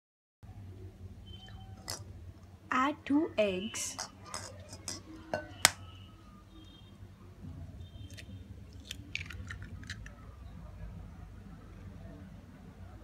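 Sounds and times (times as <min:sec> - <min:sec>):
eggshell crackling: 0:08.1 - 0:10.2.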